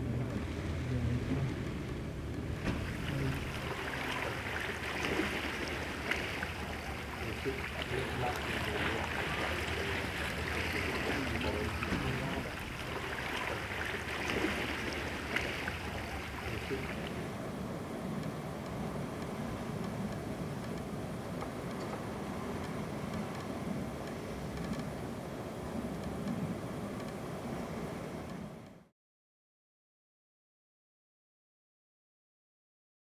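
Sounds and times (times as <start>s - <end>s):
waves splashing against rocks: 0.0s - 24.0s
low steady rumble: 0.0s - 28.9s.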